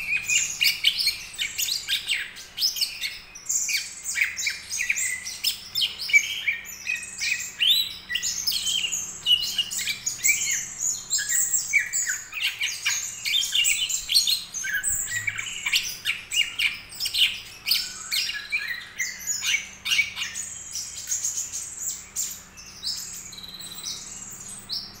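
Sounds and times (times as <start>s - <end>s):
bird chirping and whistling: 0.0s - 25.0s.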